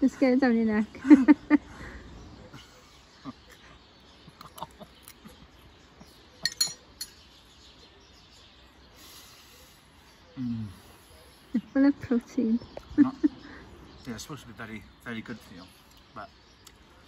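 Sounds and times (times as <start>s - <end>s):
metal spoon clinking on ceramic dish: 6.4s - 7.2s.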